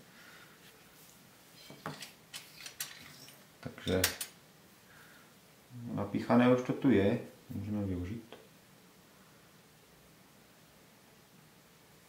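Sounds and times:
small objects clicking on tabletop: 0:03.8 - 0:04.4.

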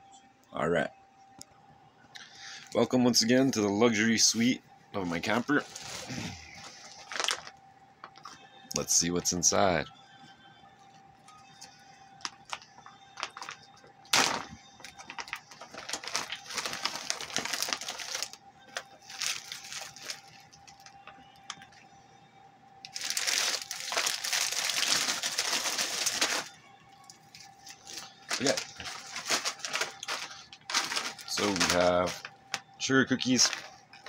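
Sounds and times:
plastic packaging crinkling: 0:05.2 - 0:08.3, 0:12.2 - 0:21.7, 0:22.8 - 0:34.0.

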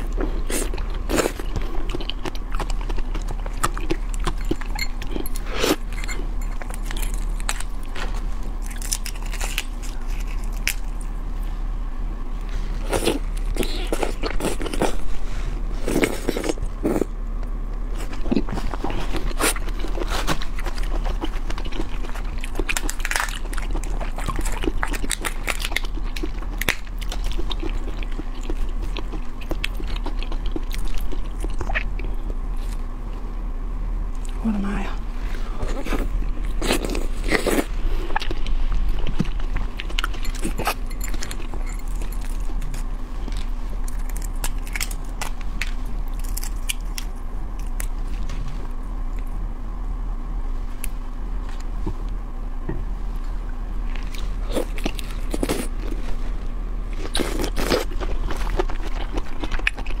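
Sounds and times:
chewing and slurping: 0:00.0 - 0:11.0, 0:12.5 - 0:17.1, 0:17.9 - 0:32.9, 0:35.2 - 0:48.6, 0:53.8 - 1:00.0
prawn shells cracking: 0:08.6 - 0:11.0, 0:39.8 - 0:47.9.

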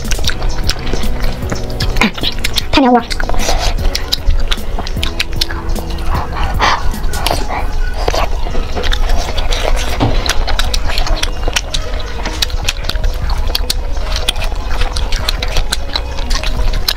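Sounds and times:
steady low rumble: 0:00.0 - 0:07.9
chewing mouth clicks and smacks: 0:00.0 - 0:16.9.

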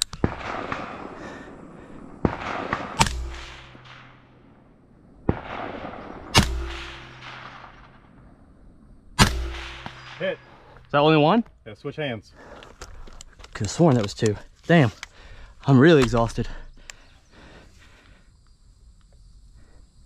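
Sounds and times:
rifle shots: 0:00.1 - 0:08.4, 0:09.2 - 0:10.6
long rolling echo: 0:00.3 - 0:10.8.

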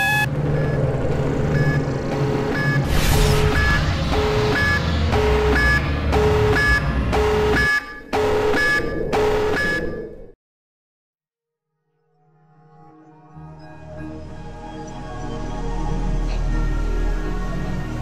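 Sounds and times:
two-tone electronic alarm beeping: 0:00.0 - 0:02.9, 0:03.5 - 0:10.1
heavy explosion rumble: 0:02.8 - 0:07.1.

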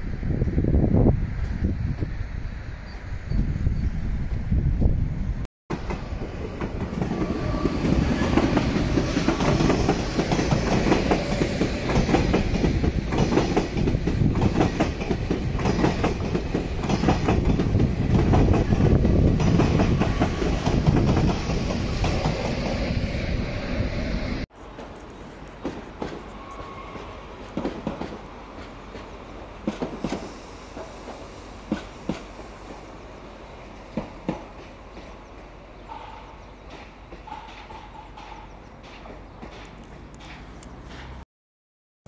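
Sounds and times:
train passing on tracks: 0:00.0 - 0:41.2
wheels clacking over rail joints: 0:33.9 - 0:41.2.

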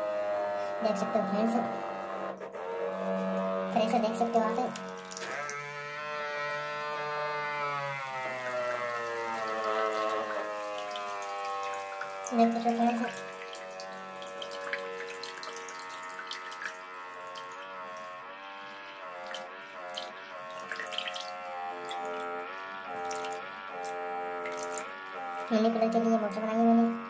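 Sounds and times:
small pump motor whining: 0:00.0 - 0:27.0
water splashing and spraying: 0:04.3 - 0:05.8, 0:08.1 - 0:18.2, 0:19.2 - 0:24.9.

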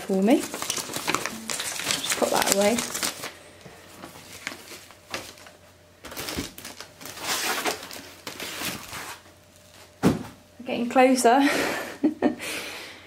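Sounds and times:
foam sheet rustling against cardboard: 0:00.1 - 0:03.3, 0:06.1 - 0:09.9.

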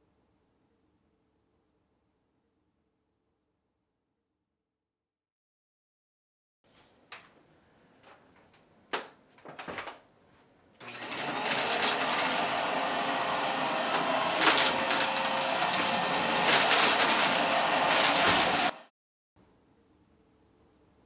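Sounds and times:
vacuum cleaner clicks: 0:10.8 - 0:18.7
vacuum cleaner whining on carpet: 0:10.8 - 0:18.9.

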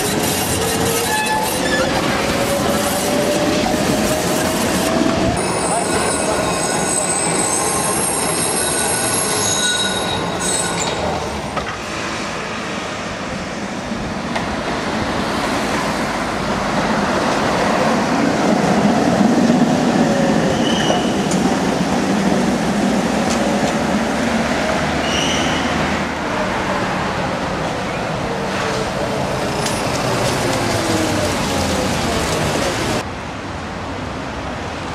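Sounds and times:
tram wheel squeal: 0:00.0 - 0:12.5, 0:20.2 - 0:21.5, 0:24.9 - 0:26.1, 0:29.4 - 0:31.6
passing tram rumble: 0:00.0 - 0:34.9.

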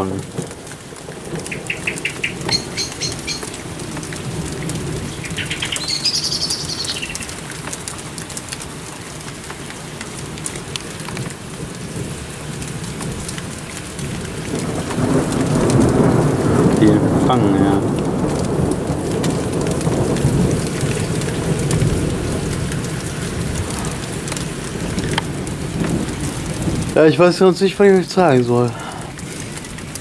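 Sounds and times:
steady rain falling: 0:00.0 - 0:30.0
songbird chirping: 0:01.5 - 0:03.6, 0:05.1 - 0:07.4.

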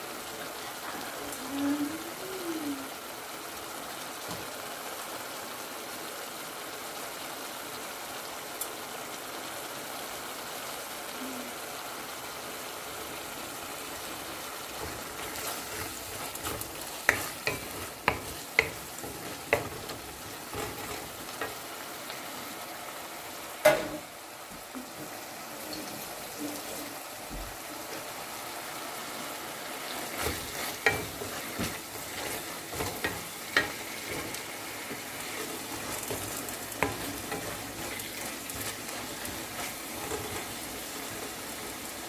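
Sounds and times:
shrimp sizzling in oil: 0:00.0 - 0:42.0
spoon knocking against pan: 0:16.4 - 0:20.9.

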